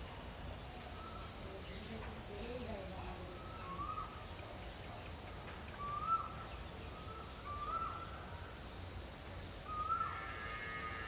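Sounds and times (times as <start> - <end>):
high-pitched insect drone: 9.7 - 11.0.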